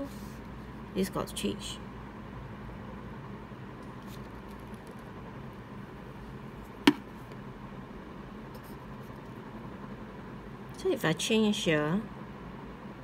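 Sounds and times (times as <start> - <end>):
marker tapping paper: 6.8 - 7.1.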